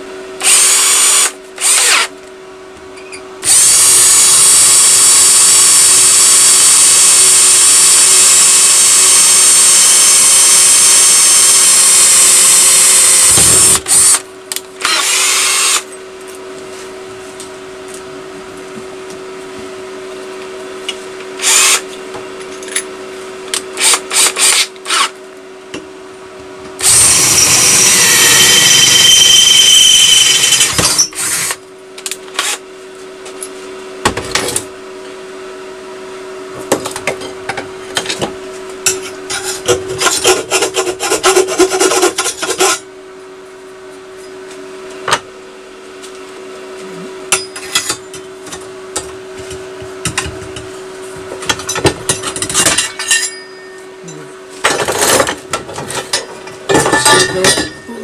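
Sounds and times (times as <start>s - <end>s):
electric drill squealing through metal: 0.4s - 2.1s, 3.0s - 14.2s, 14.8s - 15.9s, 21.4s - 21.8s, 23.8s - 25.2s, 26.8s - 31.6s
hand tool scraping: 39.3s - 42.8s.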